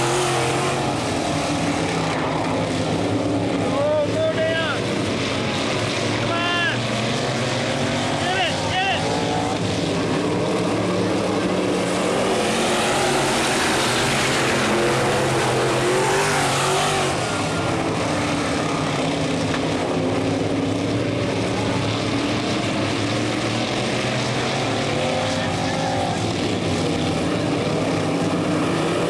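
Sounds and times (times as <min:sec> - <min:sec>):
race car engines at full throttle: 0:00.0 - 0:29.0.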